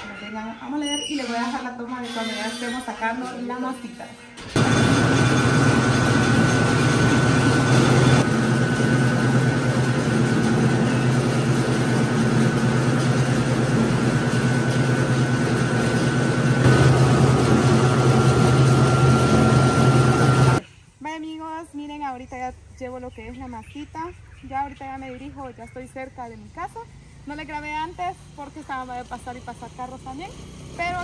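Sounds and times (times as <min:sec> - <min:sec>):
high machine whine: 0:04.5 - 0:20.6
corn mill grinding: 0:04.6 - 0:20.6.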